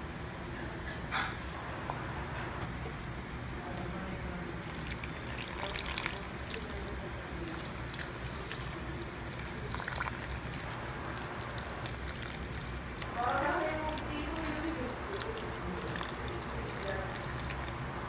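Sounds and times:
liquid pouring into soup: 0:03.8 - 0:17.9.

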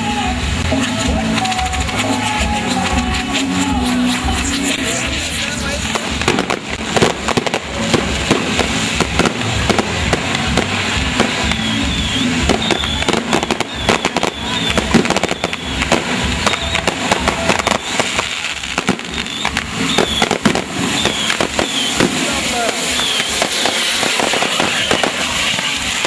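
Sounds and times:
fireworks cracks and bangs: 0:00.0 - 0:26.0
fireworks hissing rush: 0:00.0 - 0:26.0
high wavering whistles: 0:11.4 - 0:22.1, 0:22.7 - 0:25.3.

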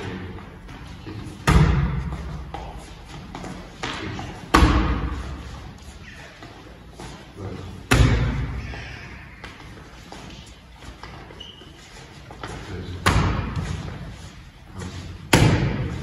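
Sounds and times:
boxing gloves hitting focus mitt: 0:15.3 - 0:16.0.

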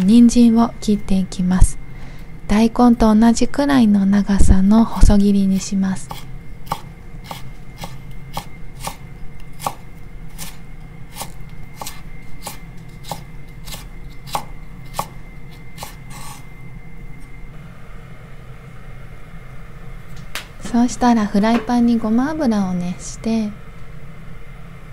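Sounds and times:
knife chopping on wooden board: 0:06.0 - 0:09.0, 0:09.6 - 0:09.8, 0:10.4 - 0:15.1.

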